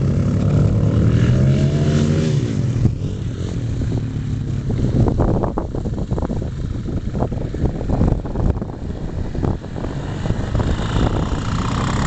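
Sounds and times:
dirt bike engine running: 0:00.0 - 0:12.0
wind buffeting microphone: 0:02.5 - 0:12.0.

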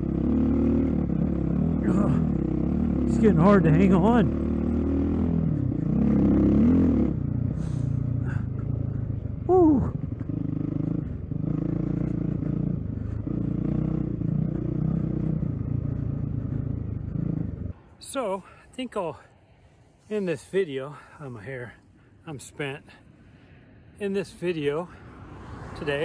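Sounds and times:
dirt bike engine: 0:00.0 - 0:17.8.

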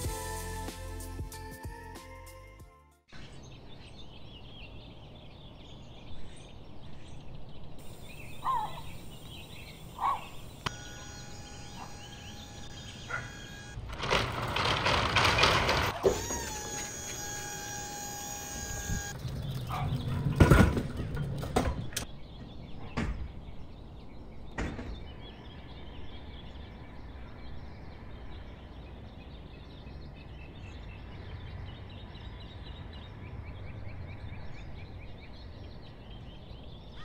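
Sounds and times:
birds chirping faintly: 0:03.1 - 0:15.6
truck engine rumbling: 0:07.8 - 0:22.1
liftgate and pallet clanking: 0:12.9 - 0:17.4.

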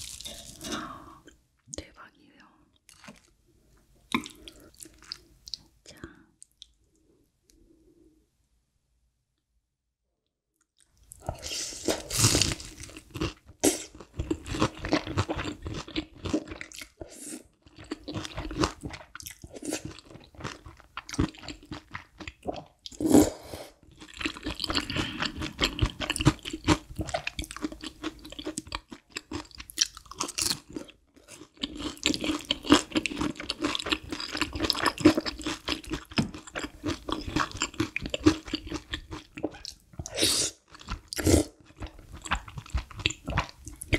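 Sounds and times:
chewing noodles: 0:23.8 - 0:43.9.

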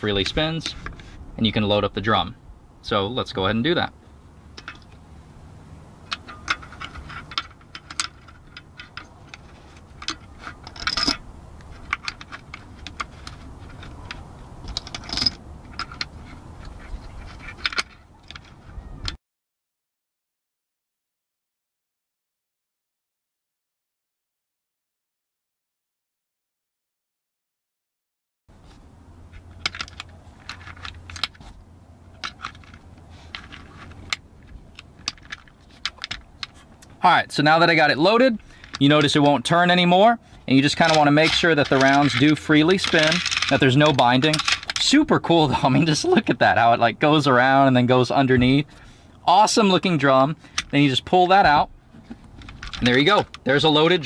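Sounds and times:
low steady hum: 0:00.0 - 0:19.2, 0:28.5 - 0:54.0
brass cartridges clinking: 0:40.6 - 0:44.9.

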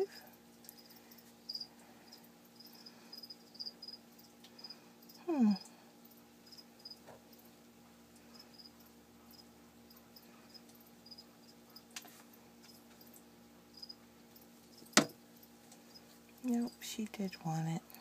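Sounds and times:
crickets chirping: 0:00.0 - 0:07.6, 0:08.3 - 0:11.9, 0:12.7 - 0:16.8
low steady hum: 0:00.0 - 0:18.0.

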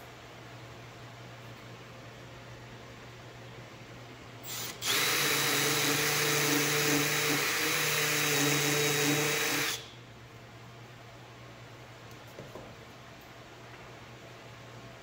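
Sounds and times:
handheld power tool running: 0:04.5 - 0:09.8.

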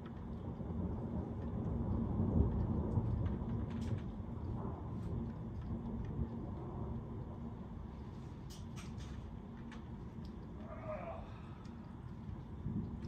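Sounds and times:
rolling thunder: 0:00.3 - 0:07.9, 0:12.2 - 0:13.0.

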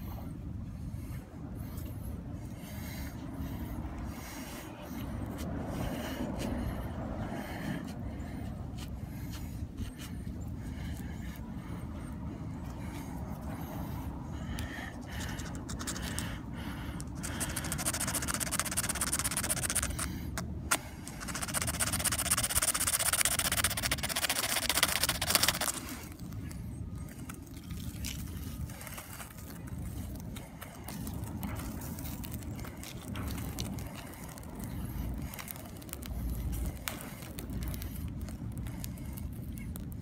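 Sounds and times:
soft handling sounds: 0:24.3 - 0:40.0.

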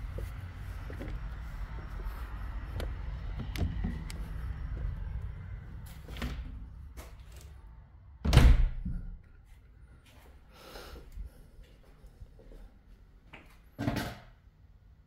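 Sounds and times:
low rumble: 0:00.0 - 0:09.5
door shutting with a thud: 0:08.2 - 0:09.2.

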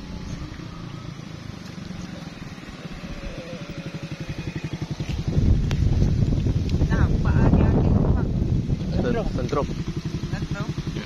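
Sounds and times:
small engine running: 0:00.0 - 0:06.5, 0:08.8 - 0:11.0.

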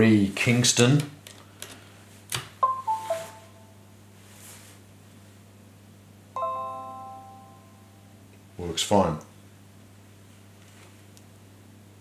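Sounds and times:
ringing notification chime: 0:02.6 - 0:03.7, 0:06.4 - 0:08.2
three-note falling chime: 0:02.6 - 0:03.7, 0:06.4 - 0:08.2.

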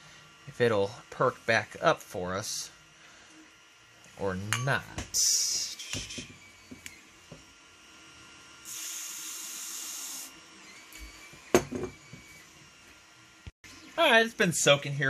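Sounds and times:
aerosol can spraying: 0:08.6 - 0:10.3.

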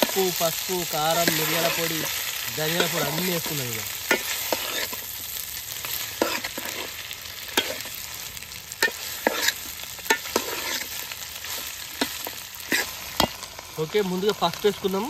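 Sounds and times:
meat sizzling in oil: 0:00.0 - 0:15.0
metal spoon scraping a pot: 0:04.1 - 0:05.0, 0:06.2 - 0:08.0, 0:08.8 - 0:11.0, 0:12.0 - 0:13.4.

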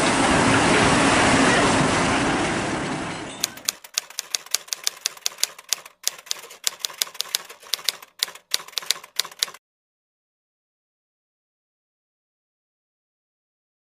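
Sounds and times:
typewriter keystroke clicks: 0:03.4 - 0:09.6.

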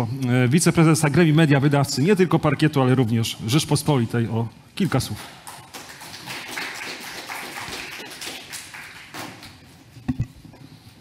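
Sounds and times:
light applause: 0:05.2 - 0:09.6.

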